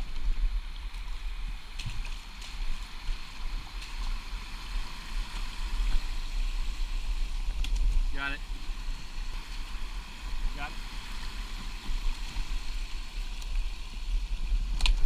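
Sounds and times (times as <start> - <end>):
sticks snapping and clicking: 7.6 - 7.9.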